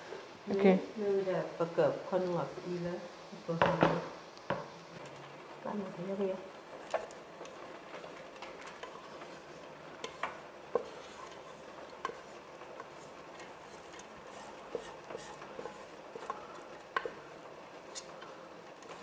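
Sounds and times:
wooden spatula scraping metal pot: 5.0s - 19.0s.

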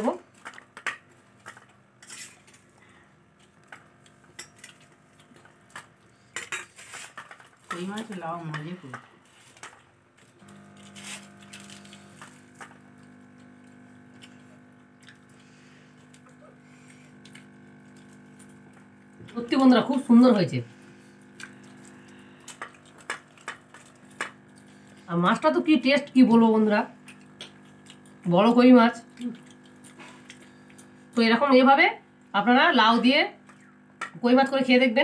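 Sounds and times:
hands mixing rice on metal plates: 0.0s - 14.7s, 15.3s - 31.4s
steady low hum: 0.0s - 35.0s
person's voice: 7.7s - 9.0s, 19.3s - 20.8s, 25.1s - 26.9s.

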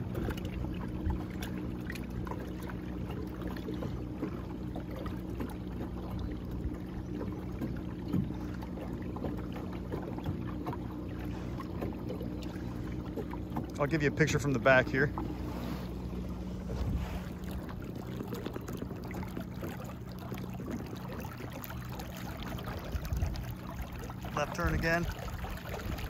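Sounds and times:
water washing along hull: 0.0s - 26.0s.

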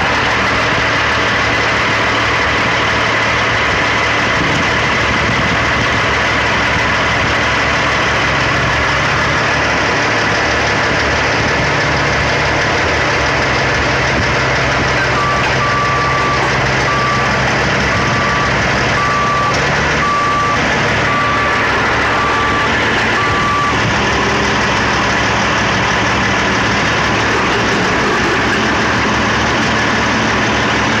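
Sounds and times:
heavy engines running: 0.0s - 31.0s
backup alarm beeping: 15.1s - 23.9s.

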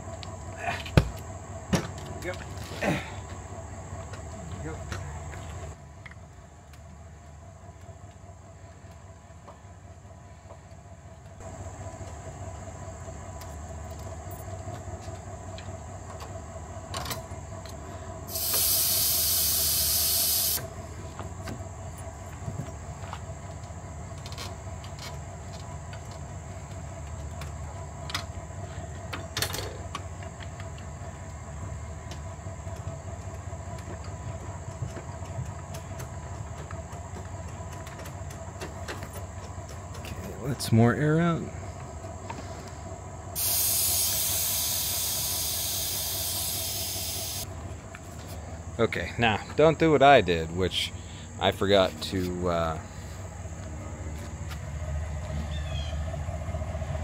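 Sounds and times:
air hissing from valve: 18.3s - 20.7s, 43.4s - 47.4s.

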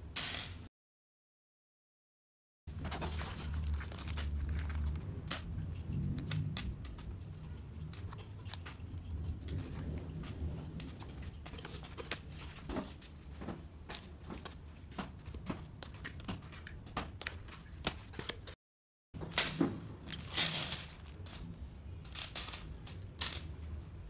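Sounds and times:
rustling: 19.2s - 23.5s
wooden pieces clicking and tapping: 22.0s - 23.5s.

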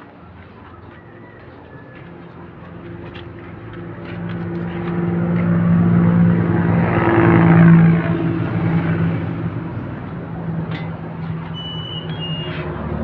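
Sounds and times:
passing vehicle engine hum: 0.0s - 13.0s.

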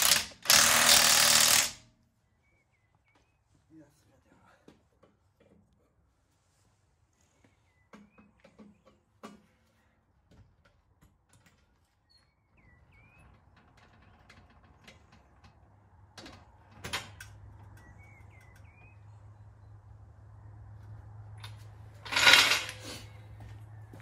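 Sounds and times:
bird chirping: 2.2s - 3.6s, 12.0s - 13.4s, 17.7s - 19.8s.

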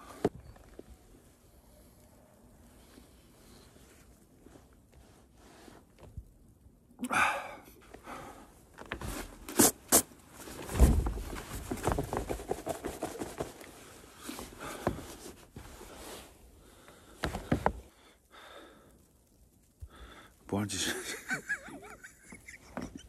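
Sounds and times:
jacket rustling: 8.5s - 17.9s.

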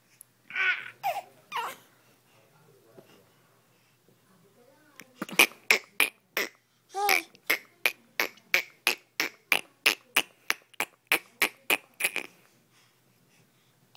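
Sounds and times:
toddler voiced sound: 6.9s - 7.7s.

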